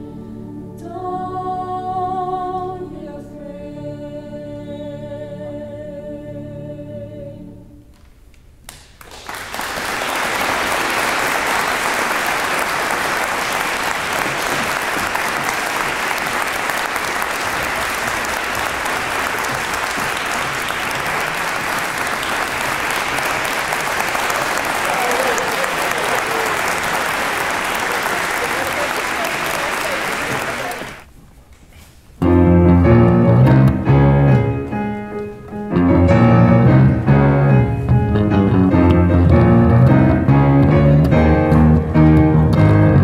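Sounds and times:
choir holding a chord: 0:00.0 - 0:07.6
audience applause: 0:09.0 - 0:31.1.

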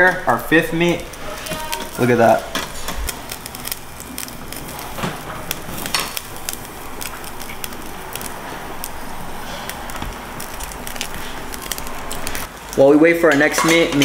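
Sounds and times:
grill sizzling and crackling: 0:00.0 - 0:14.0.

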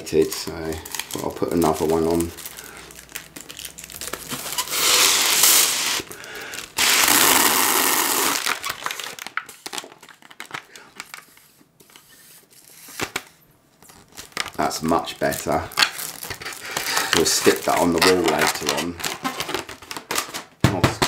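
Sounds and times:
foil crinkling: 0:00.0 - 0:20.5
air rushing into balloon: 0:06.8 - 0:08.4.

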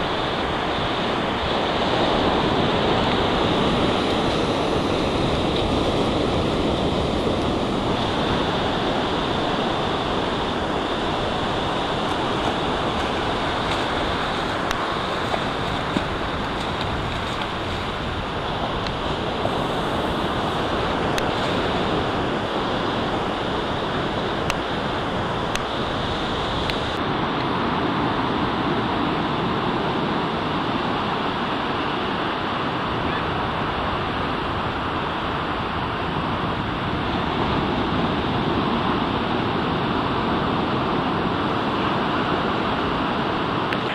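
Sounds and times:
ocean surf breaking: 0:00.0 - 0:43.9
wind on microphone: 0:00.0 - 0:43.9.

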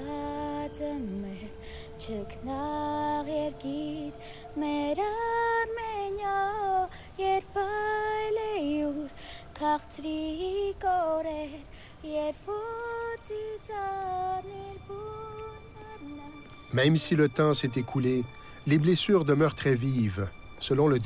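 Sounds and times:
high voice singing slow melody: 0:00.0 - 0:16.7.

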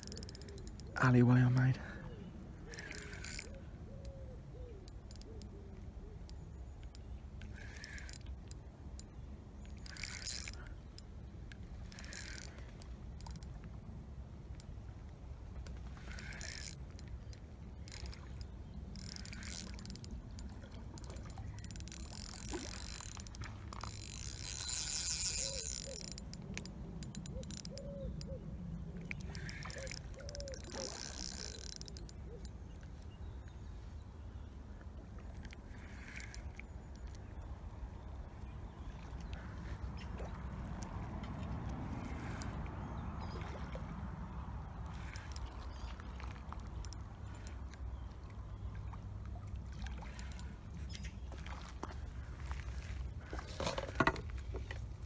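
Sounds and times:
fishing reel clutch ticking: 0:00.0 - 0:01.2, 0:02.7 - 0:04.2, 0:04.8 - 0:05.5, 0:06.2 - 0:13.5, 0:15.6 - 0:28.3, 0:29.2 - 0:32.6, 0:35.4 - 0:37.2, 0:42.0 - 0:42.6, 0:44.8 - 0:45.6, 0:46.5 - 0:47.6, 0:50.1 - 0:50.5.

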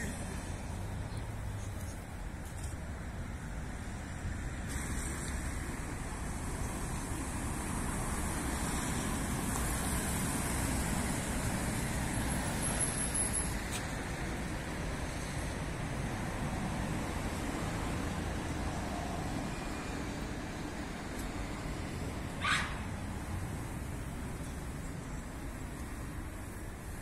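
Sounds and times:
road traffic passing: 0:00.0 - 0:27.0.

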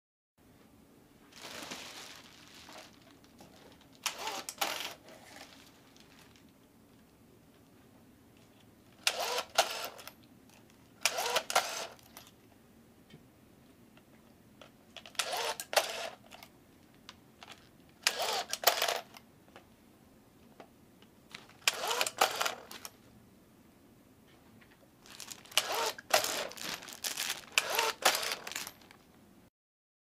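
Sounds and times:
twist tie machine whirring: 0:04.0 - 0:05.4, 0:09.0 - 0:10.1, 0:11.0 - 0:12.0, 0:15.2 - 0:16.4, 0:18.0 - 0:19.2, 0:21.6 - 0:22.9, 0:25.1 - 0:28.9.

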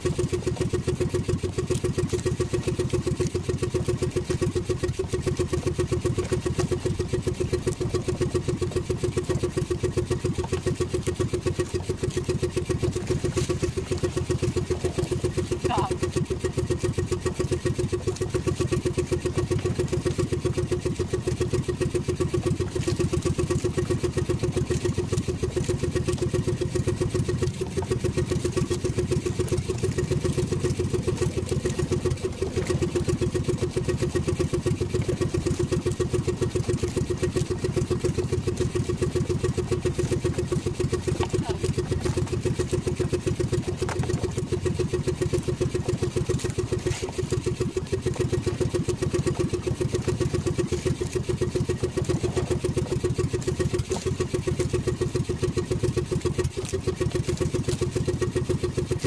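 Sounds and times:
small boat engine running: 0:00.0 - 0:59.0.

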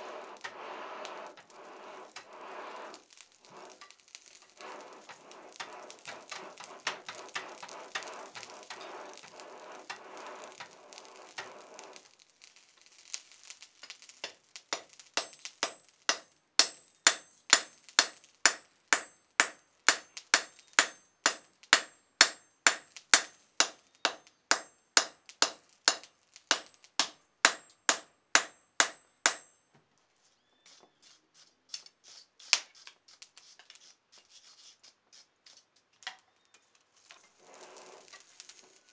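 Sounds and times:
forge fire roaring and crackling: 0:00.0 - 0:18.2, 0:37.0 - 0:38.9
hammer striking steel on anvil: 0:14.2 - 0:29.7.

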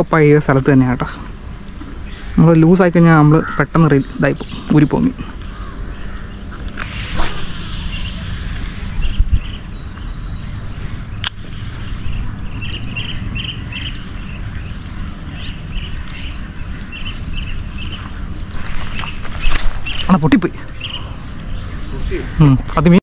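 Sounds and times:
low steady rumble: 0:00.0 - 0:22.0
bird chirping: 0:01.5 - 0:23.0
sharp click: 0:11.2 - 0:11.4.

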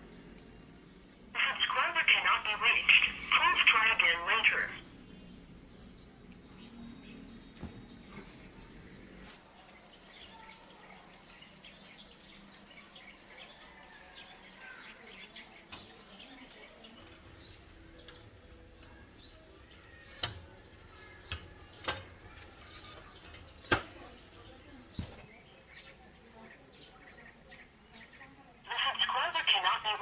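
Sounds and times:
birds chirping: 0:00.0 - 0:30.0
steady high-pitched whine: 0:15.6 - 0:25.2.

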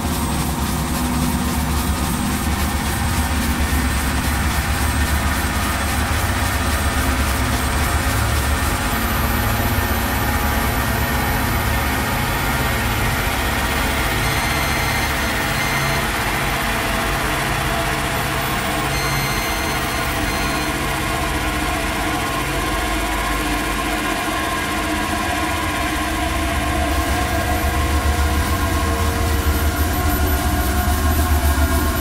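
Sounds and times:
faint high steady tones: 0:12.6 - 0:21.1.

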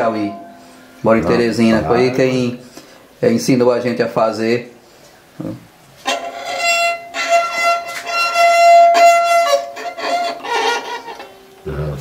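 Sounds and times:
fiddle bowed long strokes: 0:00.0 - 0:02.7, 0:06.0 - 0:11.6.

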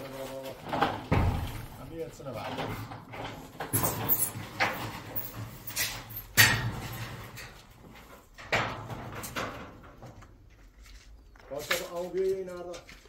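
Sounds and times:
sudden thumps: 0:00.9 - 0:02.0.

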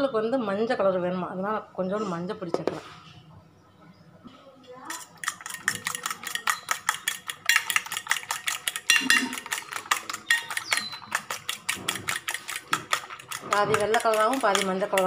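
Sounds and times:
fork beating eggs in a bowl: 0:04.8 - 0:15.0.

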